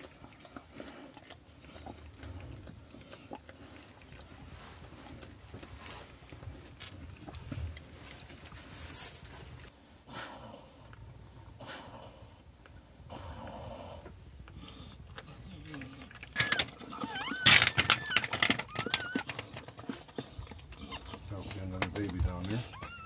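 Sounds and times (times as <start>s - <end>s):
crackling and licking noises: 0.0s - 9.8s, 10.8s - 23.0s
dog breathing heavily: 0.0s - 23.0s
puppy squeaky cries: 16.3s - 19.3s, 22.6s - 23.0s.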